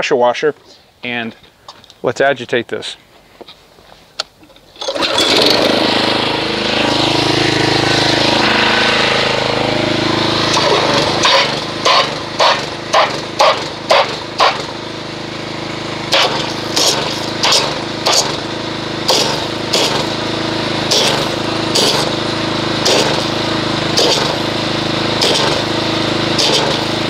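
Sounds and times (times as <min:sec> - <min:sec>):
pressure washer motor hum: 0:04.5 - 0:27.0
pressure washer pulses: 0:04.8 - 0:27.0
water spraying into bucket: 0:09.9 - 0:27.0.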